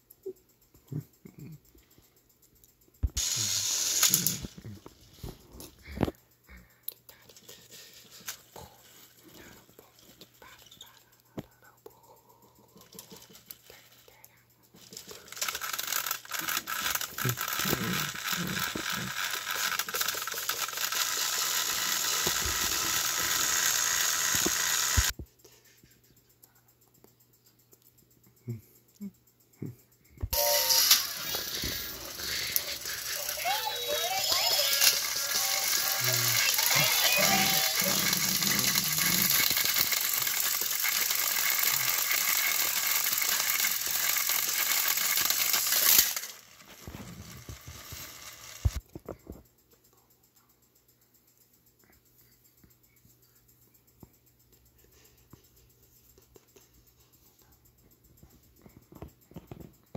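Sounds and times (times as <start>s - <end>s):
toy motors whirring: 0.0s - 29.1s, 30.3s - 49.1s
clicks and rattles: 30.8s - 49.4s.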